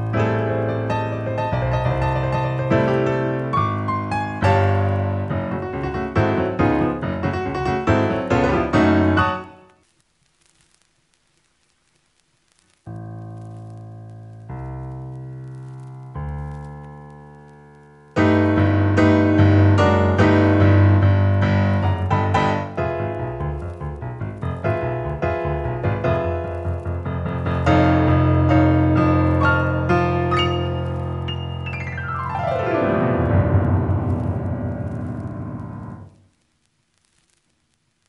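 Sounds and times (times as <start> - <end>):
fast dense piano passage: 18.2 - 36.0.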